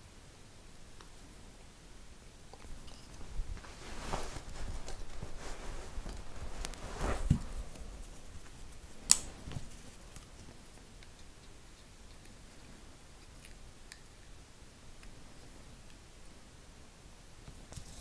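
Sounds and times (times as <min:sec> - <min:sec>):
rustling of peeled grip wrap: 0:02.6 - 0:10.8.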